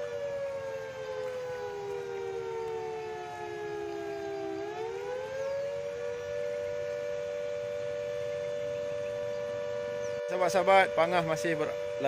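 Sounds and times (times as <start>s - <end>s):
siren wailing in two tones: 0.0s - 12.0s.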